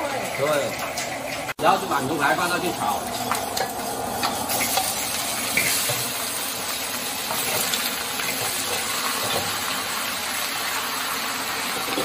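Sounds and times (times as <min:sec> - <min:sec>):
meat sizzling in a wok: 0:00.0 - 0:12.0.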